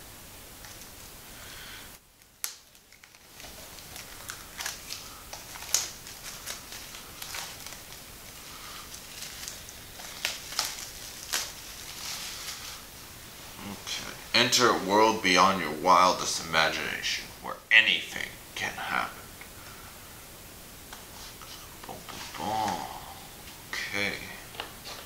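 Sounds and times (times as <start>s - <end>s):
plastic shrink wrap crinkling: 2.2s - 14.2s.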